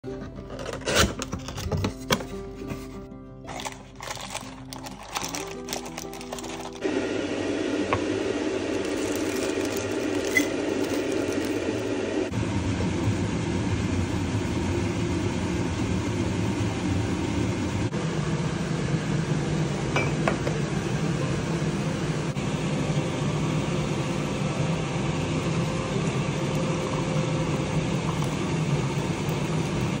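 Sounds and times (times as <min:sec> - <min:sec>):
water pouring from kettle: 0:08.6 - 0:11.9
tea pouring into mug: 0:08.7 - 0:11.9, 0:27.7 - 0:28.5
ceramic clink: 0:20.0 - 0:20.5.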